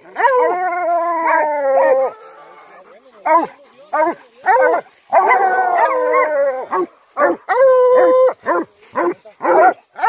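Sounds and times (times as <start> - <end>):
hounds baying and howling: 0.0 - 10.0.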